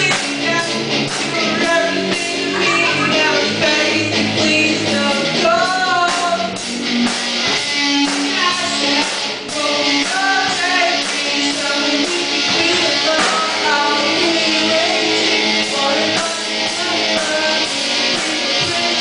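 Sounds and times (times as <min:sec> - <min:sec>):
rock band playing: 0:00.0 - 0:19.0
man singing into a microphone: 0:01.3 - 0:06.5, 0:08.4 - 0:19.0
drum hits: 0:06.1 - 0:14.6.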